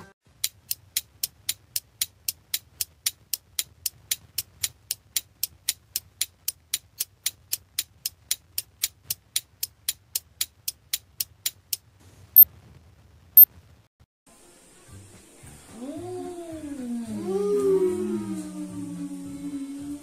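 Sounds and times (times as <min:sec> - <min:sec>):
clock ticking fast: 0:00.3 - 0:11.8.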